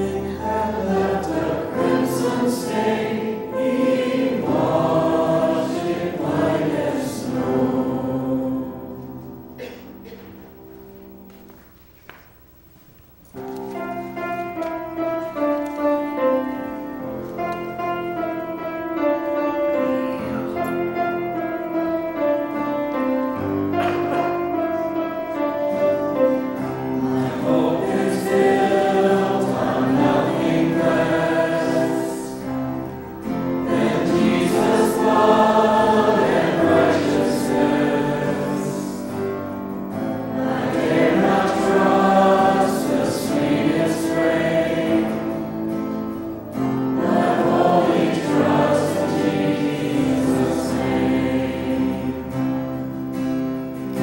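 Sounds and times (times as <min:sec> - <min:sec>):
group singing into microphones: 0:00.0 - 0:09.8, 0:27.0 - 0:46.1, 0:46.8 - 0:52.9
instrumental accompaniment: 0:00.0 - 0:54.0.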